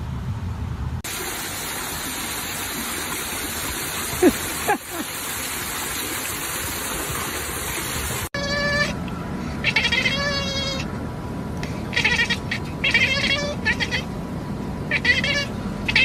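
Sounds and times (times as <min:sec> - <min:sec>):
water rushing down steps: 0:01.1 - 0:08.3
cat meowing: 0:09.6 - 0:10.8, 0:11.9 - 0:14.1, 0:14.9 - 0:16.0.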